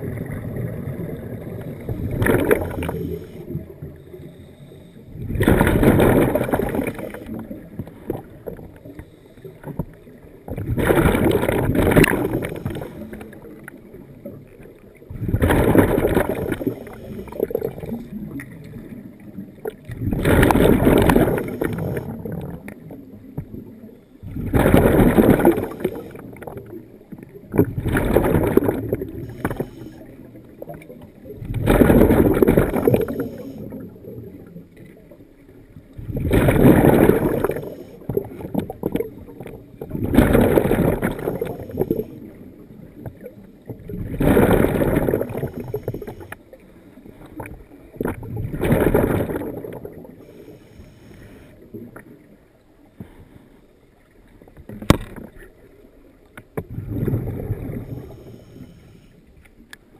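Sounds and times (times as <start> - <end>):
diver exhaling bubbles underwater: 0.0 - 3.8, 5.1 - 8.8, 10.5 - 13.6, 15.1 - 19.0, 19.6 - 22.9, 24.2 - 34.6, 36.0 - 46.3, 47.3 - 50.4, 56.6 - 58.8.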